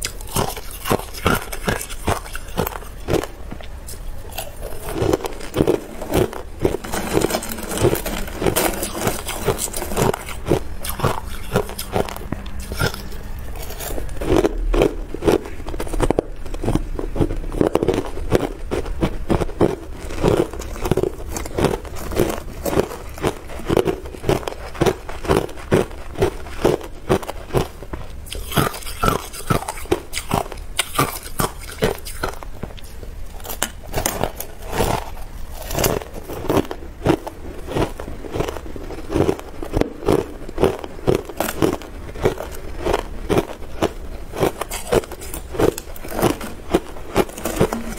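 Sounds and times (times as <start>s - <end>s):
ice being chewed: 0.0s - 47.9s
metal spoon scraping ice in bowl: 3.9s - 14.2s, 44.4s - 47.9s.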